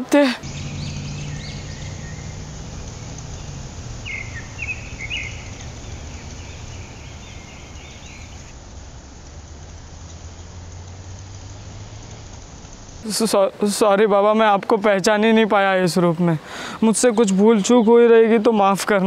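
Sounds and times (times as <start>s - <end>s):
high bird chirps: 0.4s - 8.5s
steady low hum: 0.4s - 8.5s.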